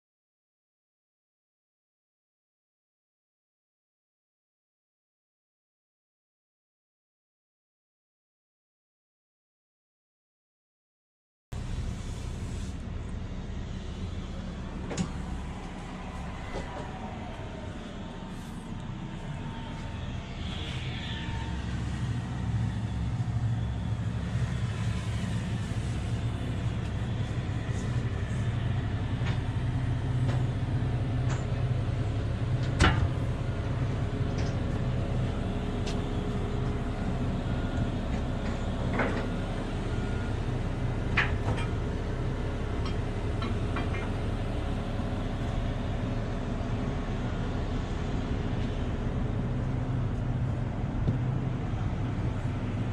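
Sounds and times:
excavator machine hum: 0:11.6 - 0:52.9.

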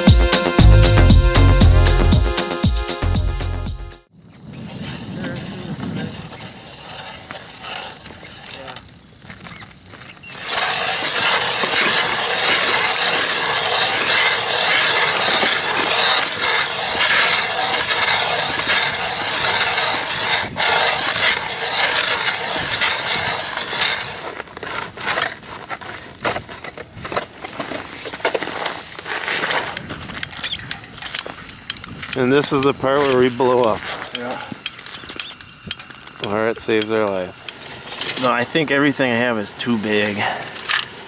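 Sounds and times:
ice auger grinding through ice: 0:04.5 - 0:41.0
ice shavings crunching and knocking: 0:09.4 - 0:35.1.

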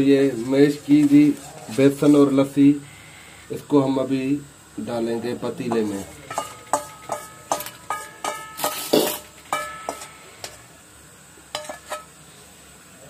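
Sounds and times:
fork clinking against steel pot: 0:05.7 - 0:10.6, 0:11.6 - 0:12.1.

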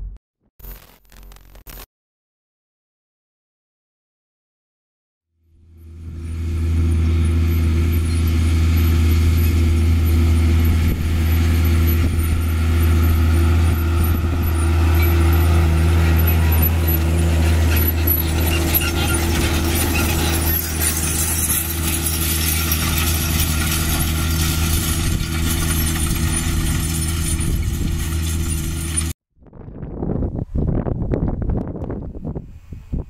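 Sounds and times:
tractor diesel engine running: 0:05.5 - 0:29.2.

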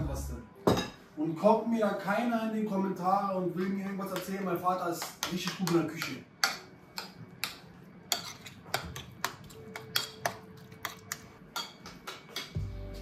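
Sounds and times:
metal spoon scraping ceramic plate: 0:08.1 - 0:11.2.

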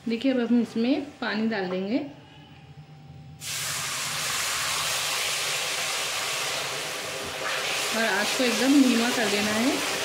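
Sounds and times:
sizzling and bubbling: 0:03.4 - 0:10.0
water hissing in hot fat: 0:03.4 - 0:10.0.

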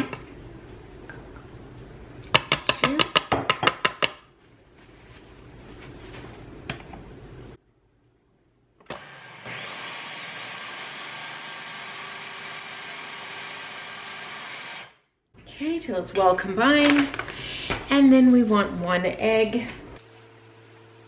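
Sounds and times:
food processor motor whirring: 0:08.8 - 0:15.0.

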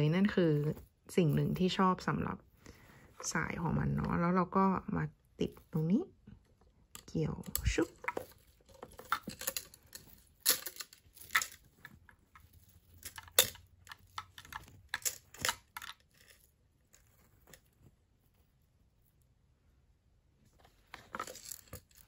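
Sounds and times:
metal chain clinking: 0:08.8 - 0:16.4.

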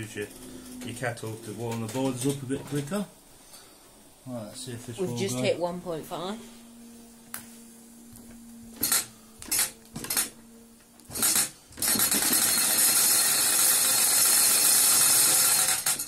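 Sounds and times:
toy steam engine running: 0:11.1 - 0:16.0.

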